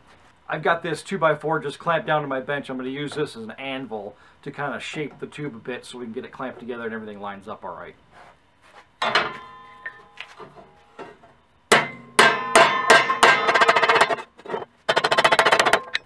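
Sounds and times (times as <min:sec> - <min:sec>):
hammer striking sheet metal: 0:09.0 - 0:11.1, 0:11.7 - 0:14.3.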